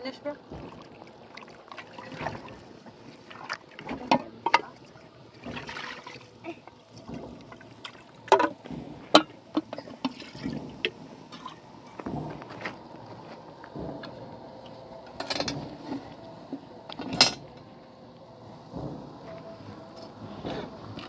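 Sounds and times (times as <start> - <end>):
objects knocking and clattering: 0.5 - 3.0, 7.0 - 12.9, 15.1 - 16.0, 16.9 - 17.6.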